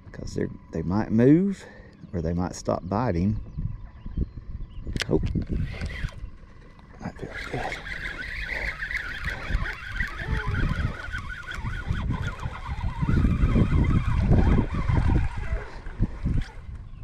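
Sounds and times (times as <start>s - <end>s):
wind buffeting microphone: 0.0s - 17.0s
fishing reel cranking: 5.4s - 16.9s.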